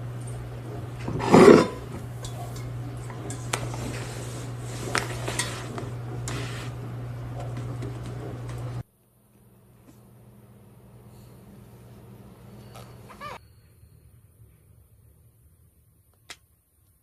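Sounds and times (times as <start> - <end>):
metal saucepan clattering: 1.0 - 4.0.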